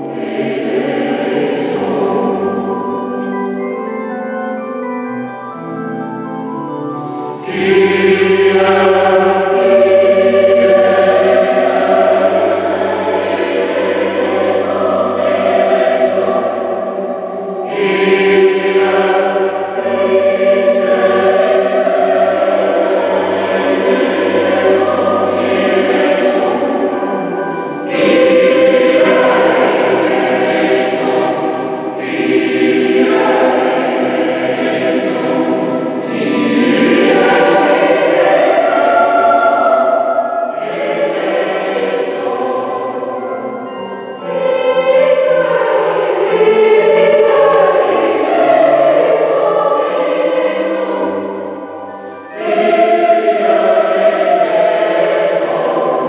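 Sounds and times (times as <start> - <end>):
choir singing: 0.0 - 56.0.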